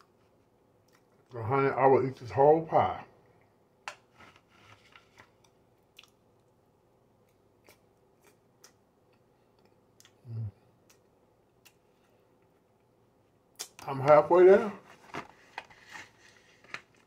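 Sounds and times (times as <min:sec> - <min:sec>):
chewing mouth clicks and smacks: 0:05.9 - 0:06.6, 0:07.2 - 0:10.2.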